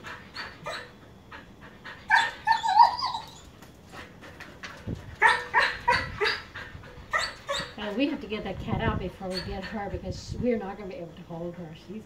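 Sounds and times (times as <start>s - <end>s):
dog whine-howling: 2.1s - 3.6s.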